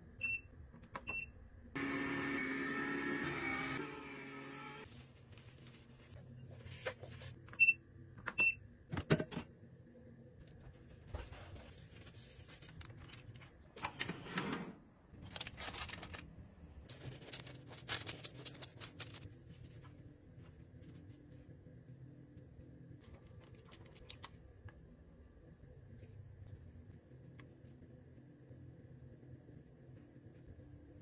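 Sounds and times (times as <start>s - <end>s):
baking paper rustling: 4.9s - 7.4s, 11.0s - 13.8s, 15.2s - 21.1s.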